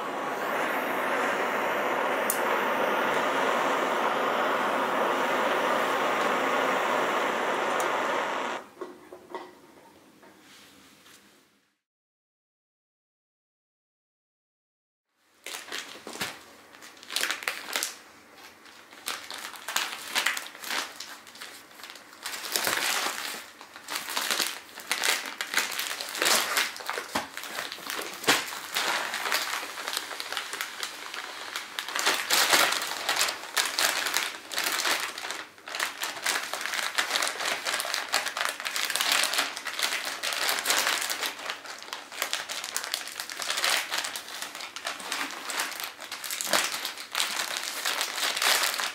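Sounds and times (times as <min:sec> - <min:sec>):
plastic bags crinkling: 0:15.4 - 0:48.9.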